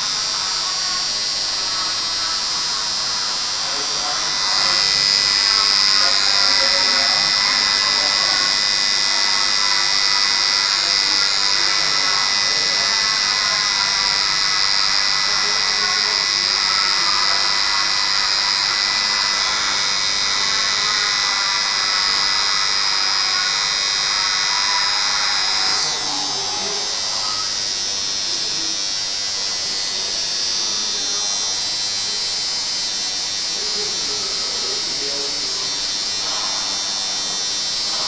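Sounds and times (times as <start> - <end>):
tattoo machine buzzing: 0.0 - 38.0.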